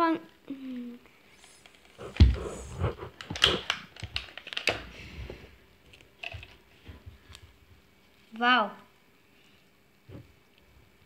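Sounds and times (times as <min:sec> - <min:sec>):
plastic wrap crackling: 0:03.1 - 0:04.8.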